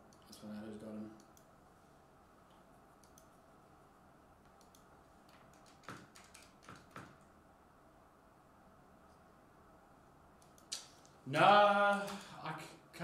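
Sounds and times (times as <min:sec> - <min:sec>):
computer mouse clicking: 0:01.2 - 0:01.5, 0:03.0 - 0:03.4, 0:04.4 - 0:07.3, 0:10.4 - 0:11.1.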